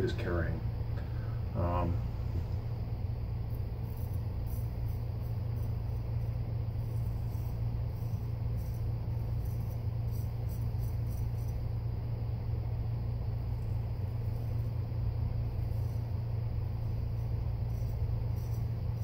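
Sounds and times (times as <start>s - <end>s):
low electrical hum: 0.0s - 19.0s
razor rasping through stubble: 3.0s - 11.8s, 13.2s - 19.0s.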